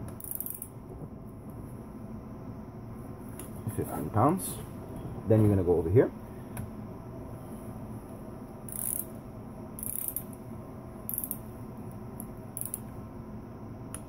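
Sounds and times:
torque wrench ratchet clicks: 0.2 - 0.7, 8.7 - 9.1, 9.8 - 10.4, 11.1 - 11.4, 12.6 - 12.9.

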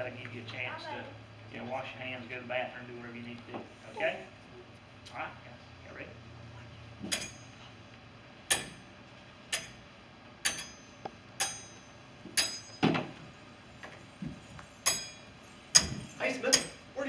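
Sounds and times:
hammer striking metal: 7.1 - 7.6, 8.5 - 8.9, 9.5 - 9.8, 10.4 - 13.0, 14.8 - 16.9.

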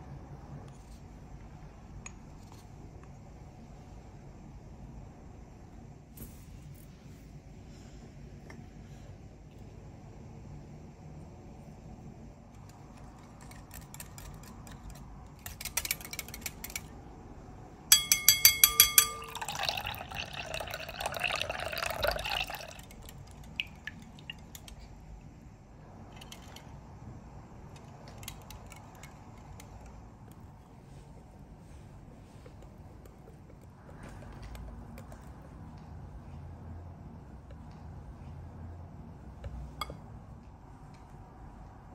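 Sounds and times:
sharp ringing clinks: 17.9 - 19.8
liquid pouring into glass bowl: 17.9 - 24.6.

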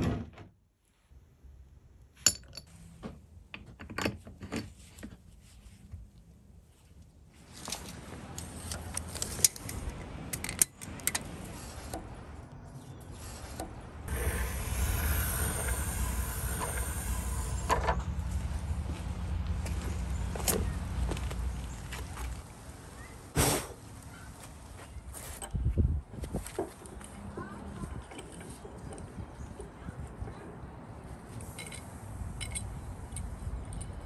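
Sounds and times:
wind rumble on microphone: 25.4 - 26.6, 32.1 - 34.0.

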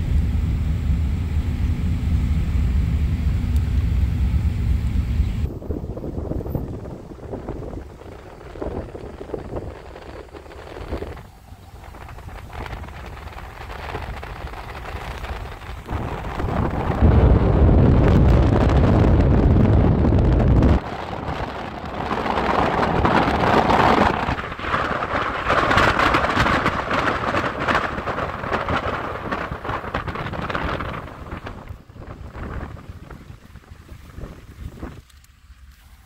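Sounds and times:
wind buffeting microphone: 0.0 - 35.8
heavy low rumble: 0.0 - 36.0.

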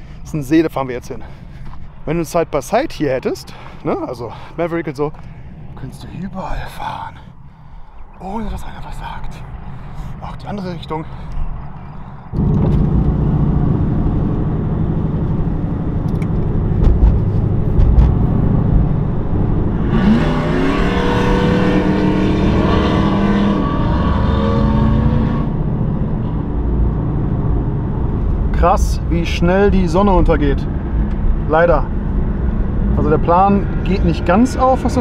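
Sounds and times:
road noise: 0.0 - 35.0
car engine: 3.5 - 35.0.

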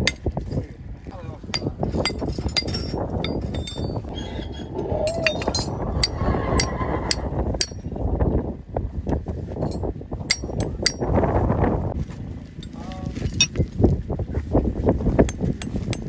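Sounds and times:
low steady rumble: 0.0 - 16.0
hammer tapping horseshoe: 1.6 - 4.0, 10.3 - 11.0, 15.3 - 16.0.

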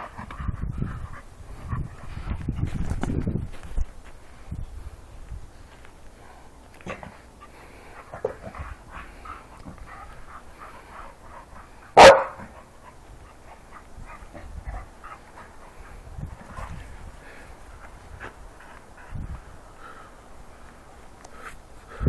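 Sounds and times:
dog barking: 12.0 - 12.6.

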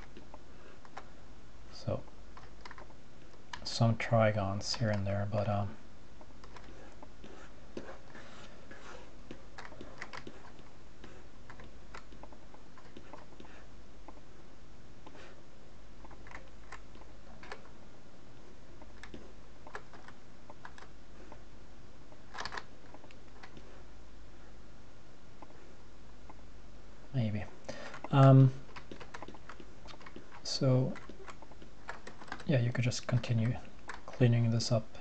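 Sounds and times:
steady low hum: 0.0 - 35.0
computer keyboard clicks: 22.4 - 22.7.

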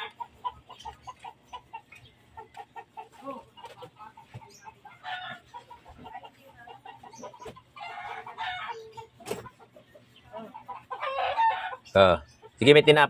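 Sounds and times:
chickens clucking: 0.0 - 13.0
high chicken squawks: 10.3 - 11.9.

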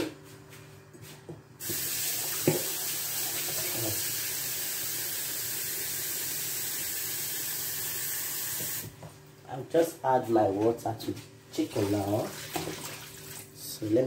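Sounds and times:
water running from a tap: 1.6 - 8.9, 11.7 - 13.5.

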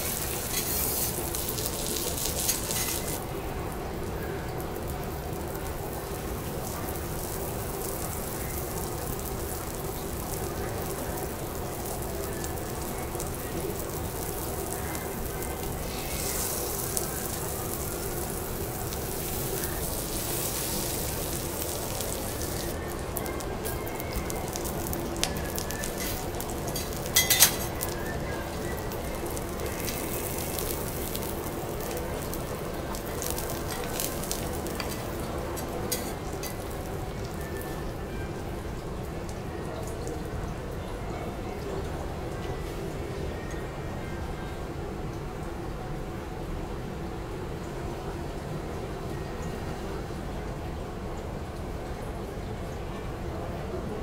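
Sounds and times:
utensils clicking on metal griddle: 0.0 - 3.2, 25.8 - 28.0, 33.3 - 36.8
food sizzling on a griddle: 0.0 - 38.1.

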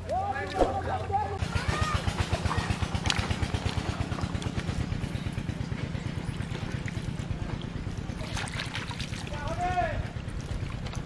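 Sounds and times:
small engine running: 1.4 - 8.3.

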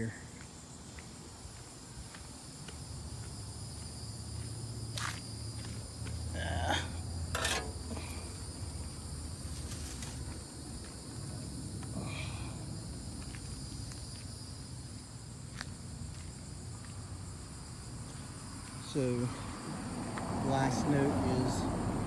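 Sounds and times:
insects chirping: 0.0 - 22.0
short knocks and scrapes: 7.3 - 8.0.

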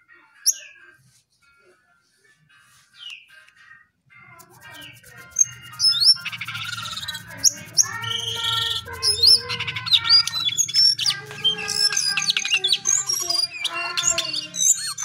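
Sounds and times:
bird singing whistles and chatter: 4.8 - 15.0.

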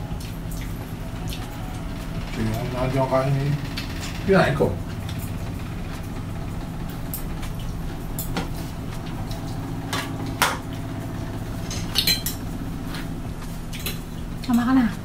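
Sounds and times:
low machine hum: 0.0 - 15.0
cutlery clinking on plates: 11.7 - 12.4.

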